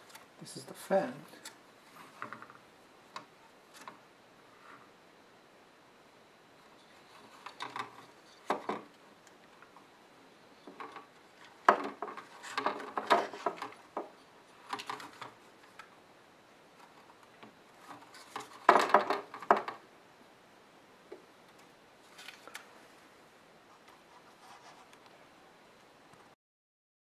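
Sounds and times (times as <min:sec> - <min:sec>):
plastic parts clicking and knocking: 0:07.2 - 0:09.0, 0:10.6 - 0:15.9, 0:17.4 - 0:19.8.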